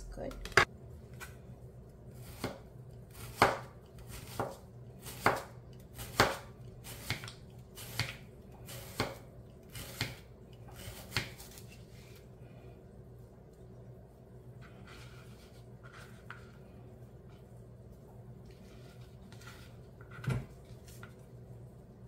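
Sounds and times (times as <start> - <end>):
knife chopping on plastic board: 3.2 - 8.2.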